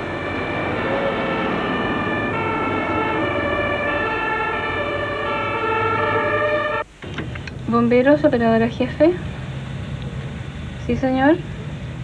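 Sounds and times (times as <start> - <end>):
two-tone fire engine sirens: 0.0 - 6.9
engines rumbling: 0.0 - 12.0.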